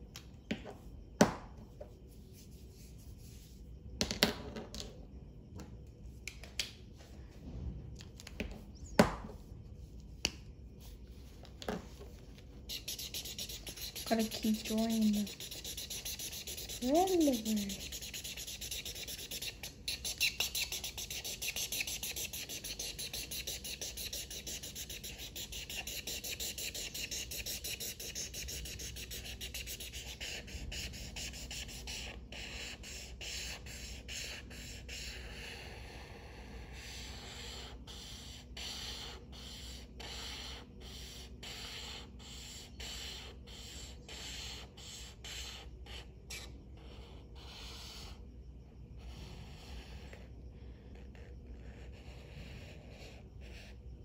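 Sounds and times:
marker scribbling on paper: 10.8 - 48.2, 51.0 - 53.8.

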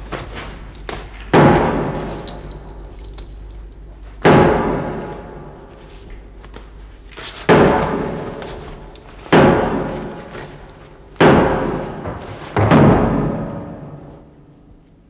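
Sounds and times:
heavy booming hits: 9.3 - 14.3.

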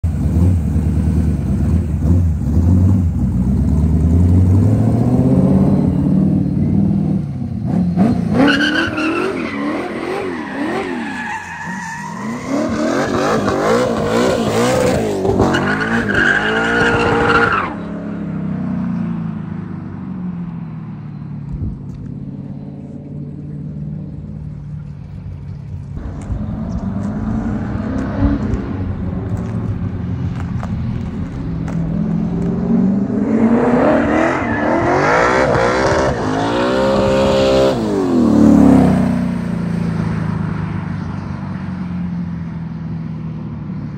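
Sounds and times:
car engine revving: 12.2 - 18.3, 22.4 - 40.3.

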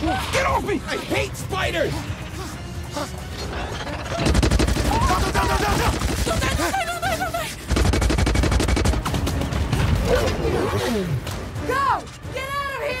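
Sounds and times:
rapid gunfire: 4.2 - 9.8.

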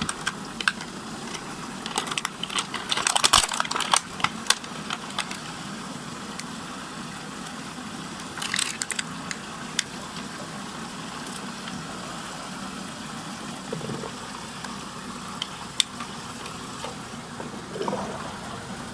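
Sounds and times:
plastic wrapping crinkling: 0.0 - 5.5
low steady hum: 0.0 - 18.9
water swirling down drain: 11.5 - 18.9.

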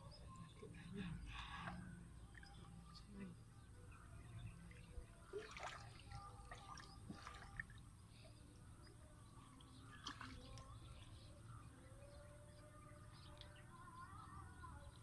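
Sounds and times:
muddy water sloshing and dripping: 0.2 - 12.0
small water splashes: 4.5 - 8.7, 9.3 - 11.4.

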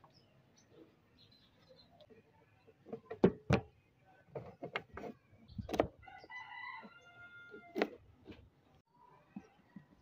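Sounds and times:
rooster crowing: 6.0 - 7.8.

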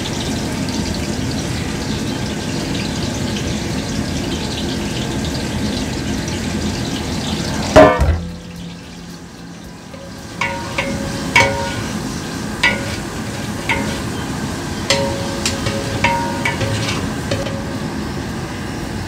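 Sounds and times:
onions sizzling in hot oil: 0.0 - 19.0
metallic clang against pot: 7.8 - 9.2, 9.9 - 18.0.

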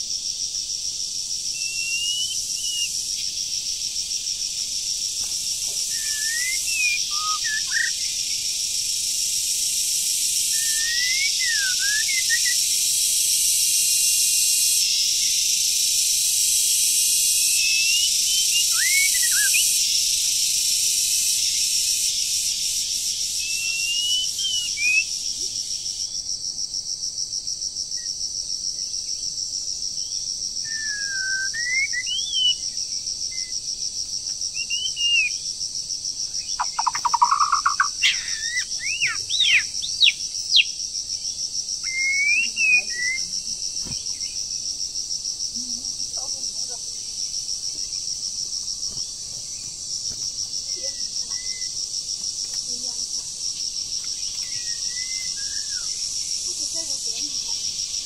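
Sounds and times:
high insect drone: 0.0 - 58.0
bird singing whistled phrases: 1.6 - 2.9, 5.9 - 8.1, 10.6 - 12.6, 17.6 - 19.7, 23.4 - 25.1, 30.7 - 32.6, 34.6 - 35.4, 36.6 - 40.7, 41.8 - 43.2, 54.4 - 56.0.

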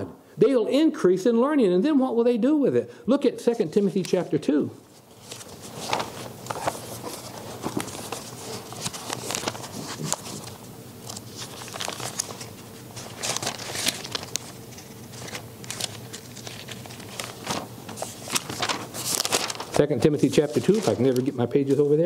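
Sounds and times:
thin pages turning: 3.8 - 22.0.

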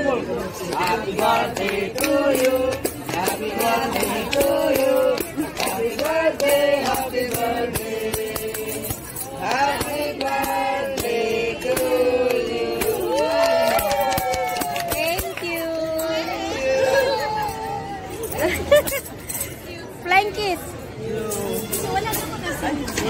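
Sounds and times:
group singing birthday song: 0.1 - 13.9
rhythmic hand clapping: 0.6 - 15.9.

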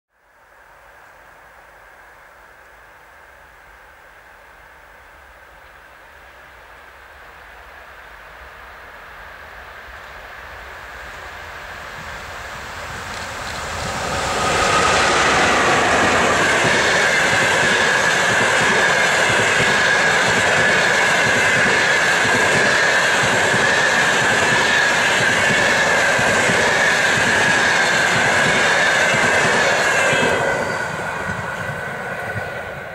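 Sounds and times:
train passing at speed: 3.1 - 32.9
steady high tone: 13.6 - 20.1.

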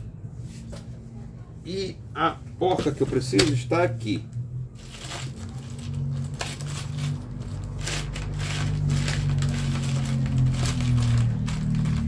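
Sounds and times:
low hum: 3.9 - 12.0
metal nuts clinking and rattling: 4.8 - 12.0.

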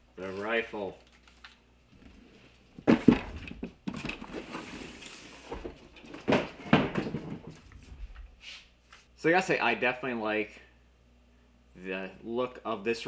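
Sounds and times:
cardboard scraping and rustling: 2.9 - 7.6.

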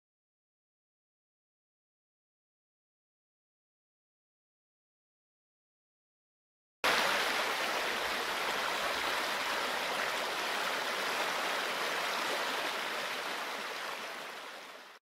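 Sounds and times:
stream running over rocks: 6.8 - 15.0.

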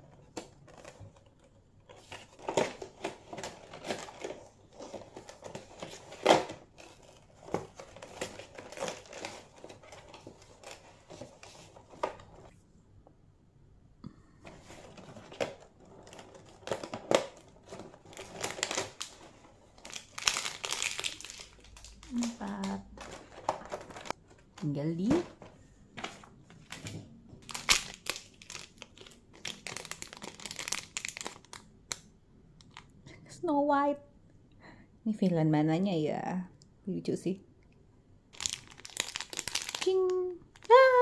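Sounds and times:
wrapper crinkling: 1.9 - 12.5, 14.6 - 24.7, 26.6 - 32.0, 38.3 - 41.0
foil bags rustling: 14.5 - 25.2, 26.1 - 31.6, 38.4 - 41.0
cardboard tearing: 15.0 - 19.1.

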